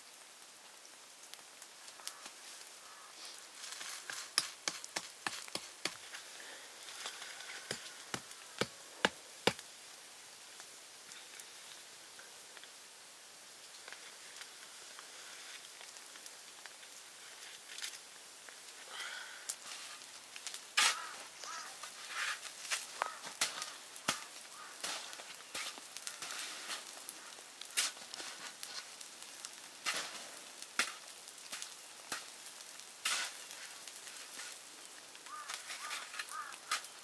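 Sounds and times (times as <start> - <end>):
shovel scraping in snow: 22.0 - 22.8.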